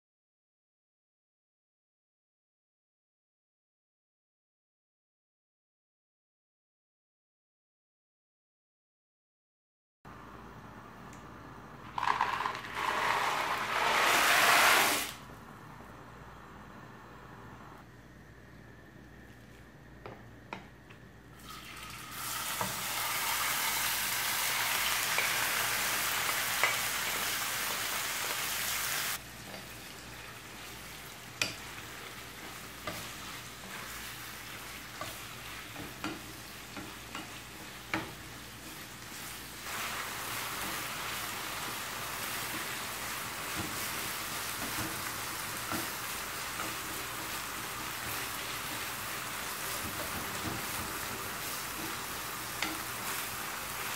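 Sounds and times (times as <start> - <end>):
wooden spatula scraping a pan: 12.0 - 15.1, 29.4 - 39.4
meat sizzling in oil: 21.4 - 53.9.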